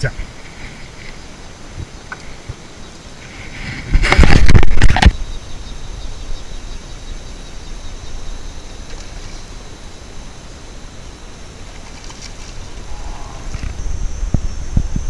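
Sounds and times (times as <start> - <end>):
wind rushing: 12.5 - 15.0.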